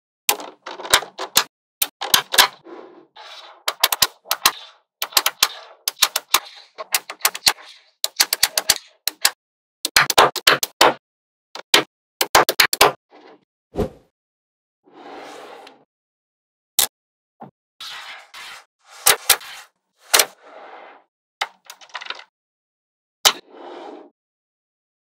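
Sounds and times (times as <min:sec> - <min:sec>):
magnetic balls clicking together: 0:03.7 - 0:10.8.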